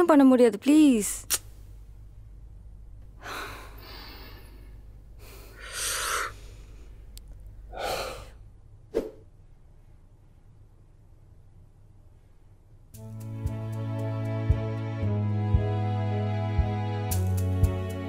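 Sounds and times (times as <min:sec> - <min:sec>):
person sighing heavily: 0:03.2 - 0:06.6, 0:07.7 - 0:08.4.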